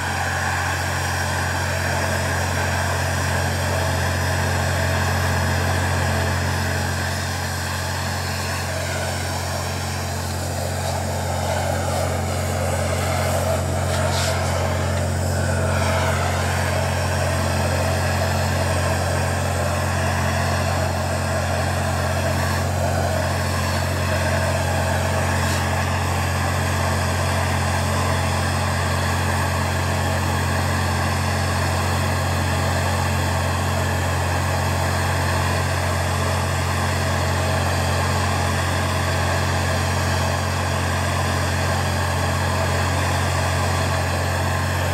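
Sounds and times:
propane torch hissing: 0.0 - 33.0.

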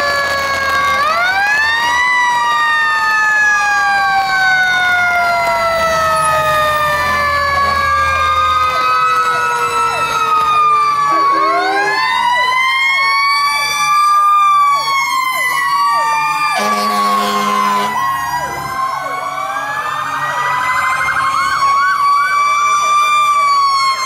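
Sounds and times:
fire truck sirens wailing: 0.0 - 24.0
rapid siren yelp: 0.0 - 24.0
horn blast: 16.6 - 18.0.

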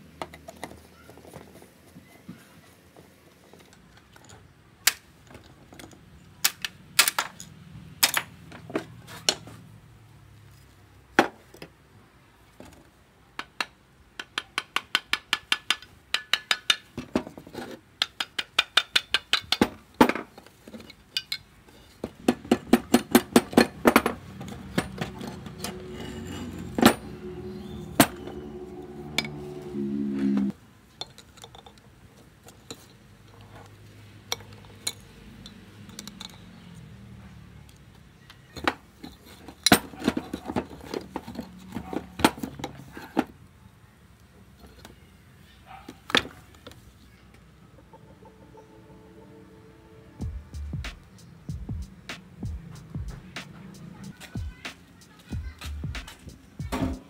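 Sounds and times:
metal tools clinking: 3.4 - 4.5, 16.2 - 29.4, 30.9 - 31.8, 34.3 - 36.6, 38.4 - 43.3
quick regular metal taps: 13.4 - 17.2, 18.0 - 20.2.

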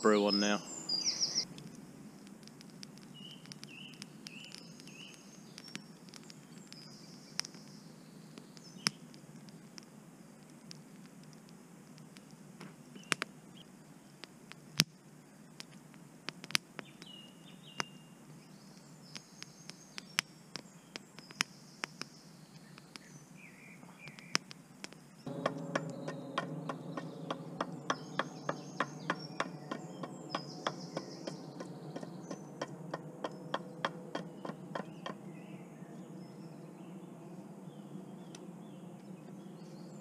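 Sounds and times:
birds chirping: 0.0 - 11.0, 12.0 - 15.7, 16.6 - 40.0
sharp crackling clicks: 1.4 - 18.0, 18.7 - 23.2, 24.0 - 35.2
low rushing sound: 25.2 - 38.6.

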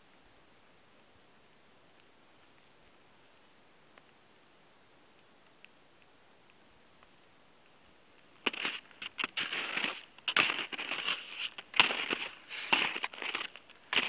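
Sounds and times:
boots crunching in snow: 8.4 - 14.0.

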